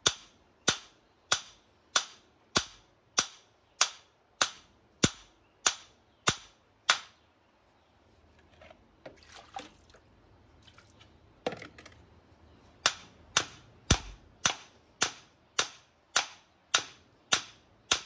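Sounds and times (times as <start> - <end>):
hammer striking metal rod: 0.0 - 7.1, 12.8 - 18.0.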